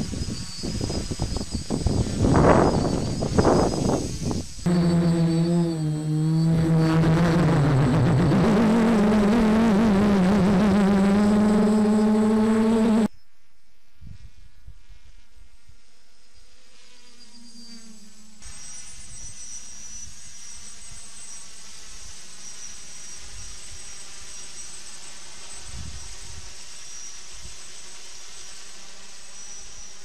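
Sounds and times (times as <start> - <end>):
drone propellers buzzing: 0.0 - 13.1
loud wavering pitched drone: 0.0 - 13.1.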